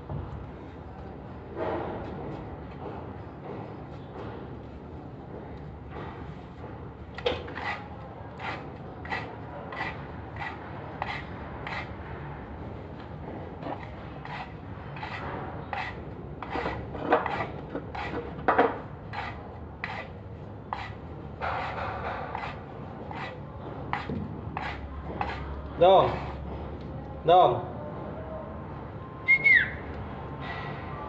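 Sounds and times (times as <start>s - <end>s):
rasping scraping strokes: 7.4s - 12.0s, 13.6s - 18.4s, 19.1s - 26.4s.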